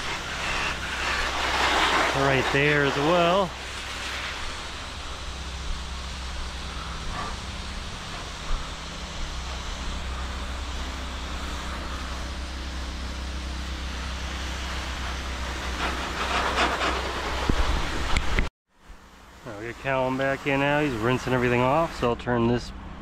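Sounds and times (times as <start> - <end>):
water spray hiss: 0.0 - 18.4, 19.5 - 22.2
pressure washer hum: 0.0 - 23.0.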